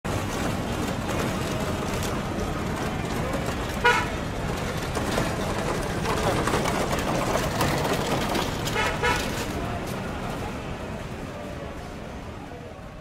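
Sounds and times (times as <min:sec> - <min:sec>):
street traffic rumble: 0:00.0 - 0:13.0
vehicle horn toot: 0:03.8 - 0:04.2, 0:08.7 - 0:09.4.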